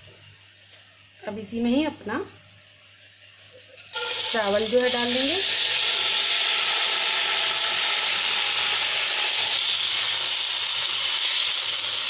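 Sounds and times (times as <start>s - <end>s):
rice sizzling in hot oil: 3.9s - 12.0s.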